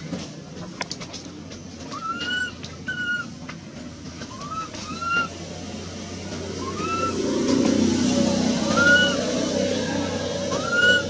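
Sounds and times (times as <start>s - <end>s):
baby monkey crying: 8.7s - 9.2s, 10.5s - 11.0s.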